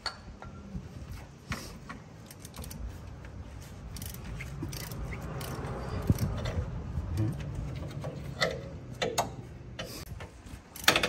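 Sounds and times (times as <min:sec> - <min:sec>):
ratchet wrench clicking: 0:02.2 - 0:02.9, 0:03.9 - 0:06.7.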